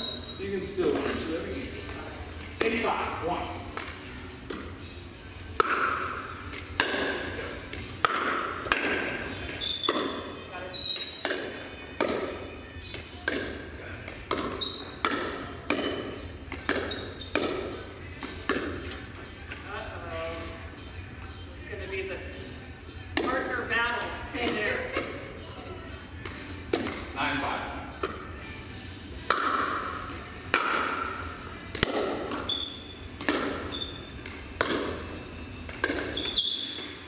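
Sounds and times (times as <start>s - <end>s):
paddles hitting plastic ball: 5.5s - 10.3s, 11.0s - 19.0s, 26.2s - 27.2s, 29.2s - 32.5s, 33.2s - 37.0s
ball bouncing on court: 5.6s - 19.0s, 31.7s - 35.1s, 35.7s - 37.0s.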